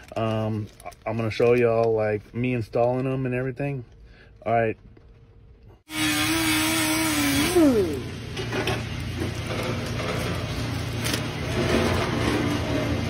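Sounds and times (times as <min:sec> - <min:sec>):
motor running: 0:05.9 - 0:11.2.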